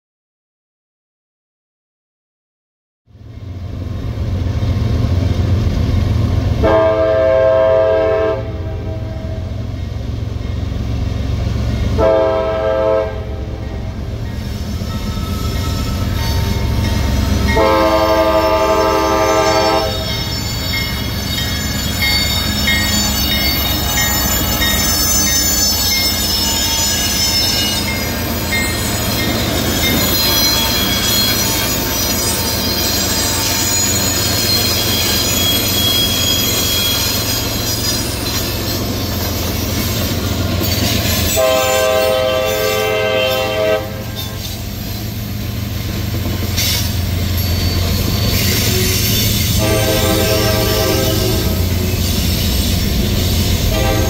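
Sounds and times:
diesel locomotives rumbling: 3.2 - 54.0
train wheel squeal: 13.7 - 54.0
rail clatter: 14.2 - 54.0
multi-chime air horn blasts: 14.9 - 37.2, 41.4 - 44.4, 46.6 - 51.8, 53.7 - 54.0.

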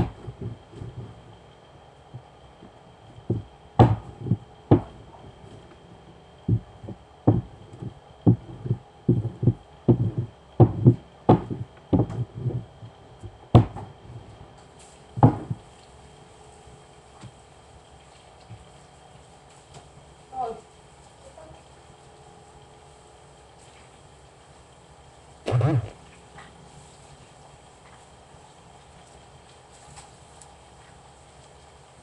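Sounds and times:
dough thumping with rolling pin: 0.0 - 1.2, 3.2 - 5.8, 6.5 - 14.4, 15.2 - 15.7.

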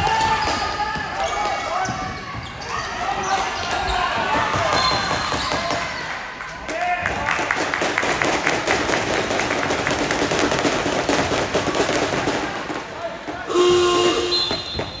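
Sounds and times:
voices of players and spectators: 0.0 - 15.0
scoreboard horn buzz: 13.5 - 15.0
basketball bounces: 14.4 - 15.0.

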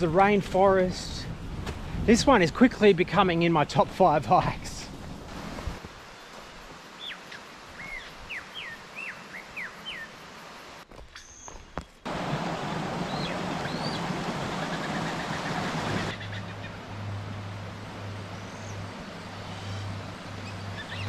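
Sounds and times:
bird whistling falling notes: 13.1 - 14.0.

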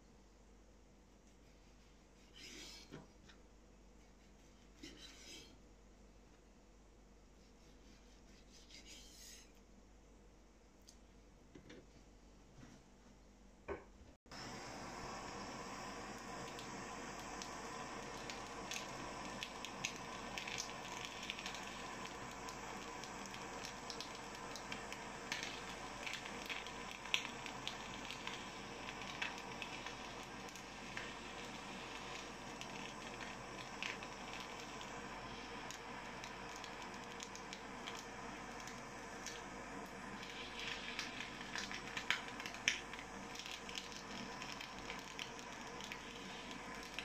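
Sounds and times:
blowtorch hissing: 14.3 - 47.0
fish crackling: 16.2 - 47.0.

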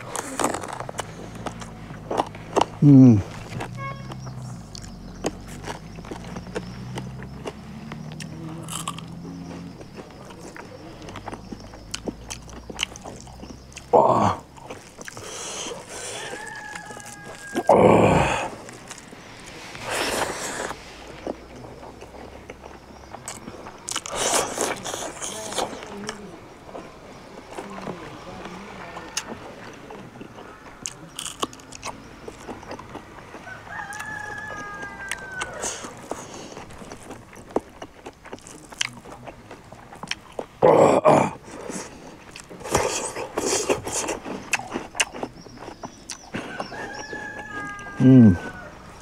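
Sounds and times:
chewing food: 0.0 - 49.0
wet mouth clicks: 42.4 - 45.5.

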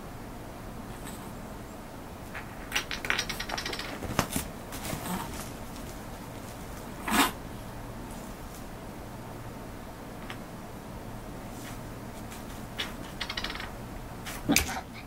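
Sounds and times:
kitten scratching crinkly pad: 2.3 - 7.4.

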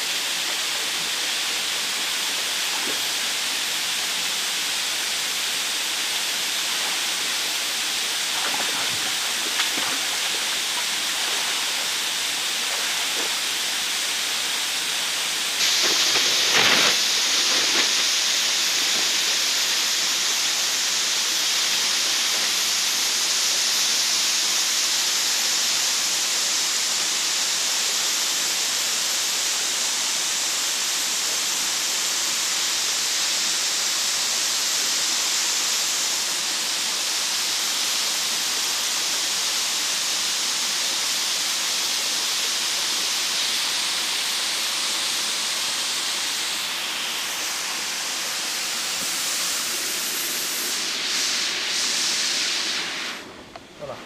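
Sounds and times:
waterfall rushing: 0.0 - 24.3.

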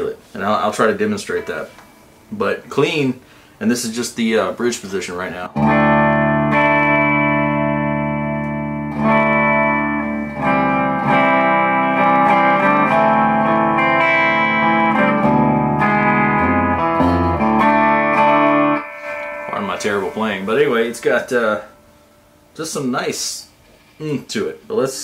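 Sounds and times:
clean electric guitar chords strummed: 5.6 - 22.4.

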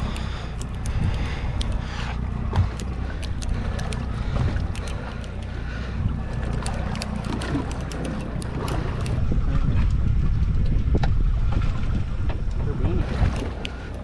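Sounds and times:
light ticks: 0.0 - 5.6, 6.2 - 9.2, 13.3 - 14.0
water lapping against boat hull: 0.0 - 14.0
wind buffeting microphone: 0.0 - 14.0.

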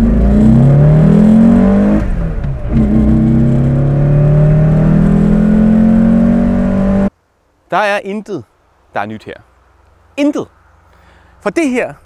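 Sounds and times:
car engine accelerating: 0.0 - 7.1.

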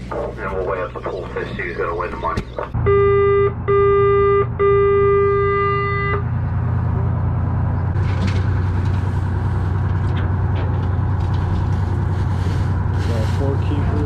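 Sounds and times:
boat engine drone: 0.0 - 14.0
boat horn blast: 2.8 - 6.4.

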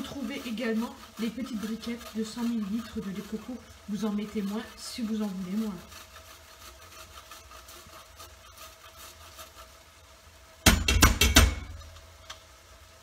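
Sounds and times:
ginger grated on metal grater: 0.0 - 10.1
grater knocking on metal pan: 10.6 - 11.8.

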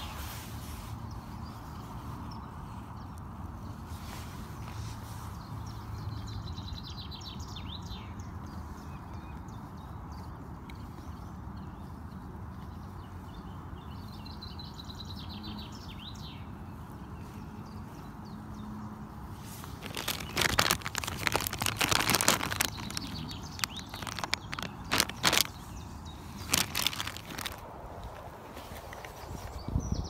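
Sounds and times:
small birds chirping: 0.0 - 30.0
plastic packet crackling: 19.6 - 25.7, 26.4 - 27.6.

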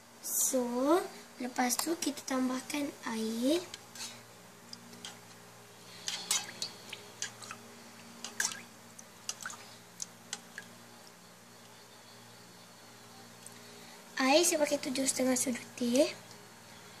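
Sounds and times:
low steady hum: 0.0 - 17.0
water drips and splashes: 8.2 - 10.7.

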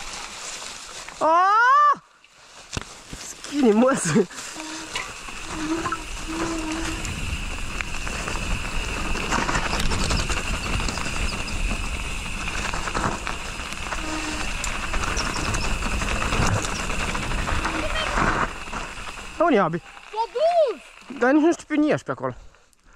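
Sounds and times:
bike tyre rumble: 0.0 - 22.9
steady high buzz: 3.5 - 22.0
wind buffeting microphone: 4.8 - 19.4
bike knocks and rattles: 5.3 - 19.4.

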